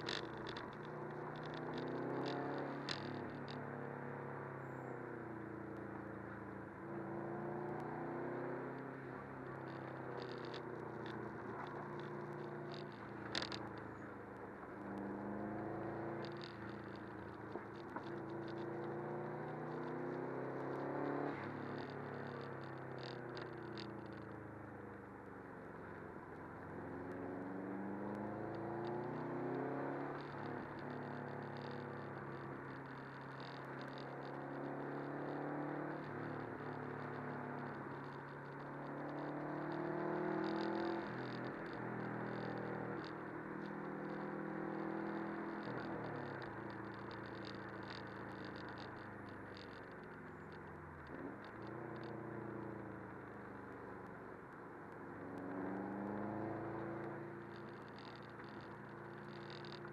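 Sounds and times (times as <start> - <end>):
car engine revving: 0.0 - 4.2, 7.0 - 14.0, 26.6 - 59.9
tyre and road noise: 0.0 - 59.9.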